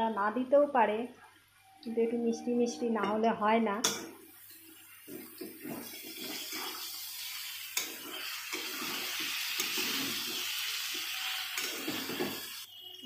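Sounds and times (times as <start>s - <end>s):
spatula stirring against pan: 3.9s - 12.8s
vegetables sizzling in hot oil: 4.2s - 13.0s.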